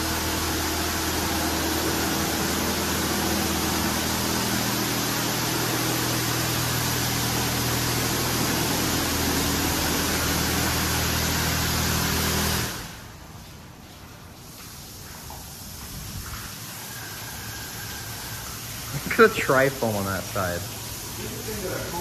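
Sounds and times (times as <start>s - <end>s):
low machine hum: 0.0s - 13.1s
water spray hissing: 0.0s - 22.0s.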